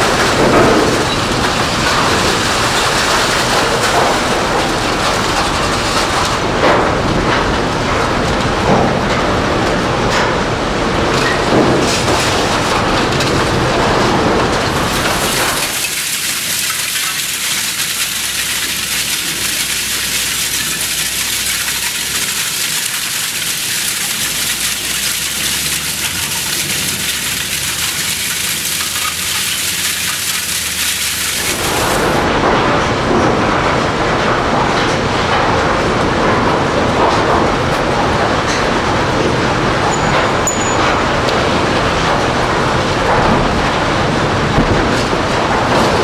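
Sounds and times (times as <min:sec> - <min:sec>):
scrap shredder grinding clatter: 0:00.0 - 0:33.8
metal pieces pouring hiss: 0:14.7 - 0:32.2.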